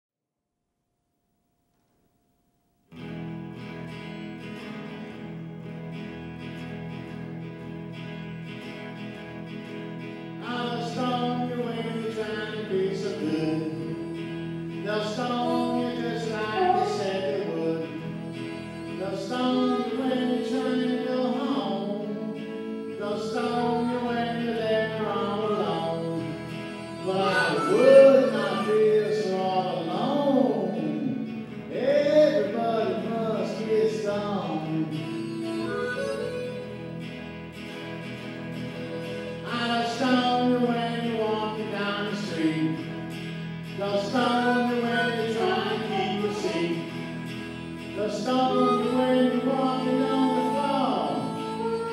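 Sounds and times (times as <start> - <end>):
electric guitar through amplifier: 1.7 - 51.9
man singing into microphone: 10.4 - 36.6, 39.2 - 51.9.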